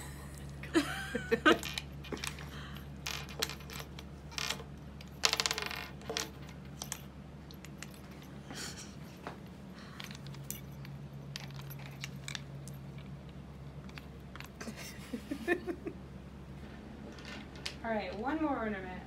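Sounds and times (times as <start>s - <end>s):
ornaments clinking on tabletop: 1.2s - 8.9s, 9.9s - 14.6s.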